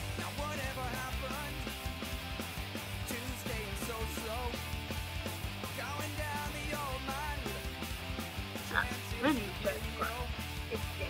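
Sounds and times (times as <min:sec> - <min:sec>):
rock song with guitar: 0:00.0 - 0:11.0
person singing: 0:08.7 - 0:10.3.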